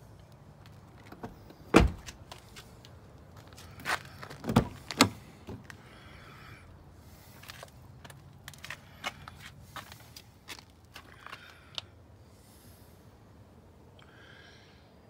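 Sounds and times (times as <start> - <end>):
car doors opening and shutting: 0.9 - 2.4, 4.2 - 5.8.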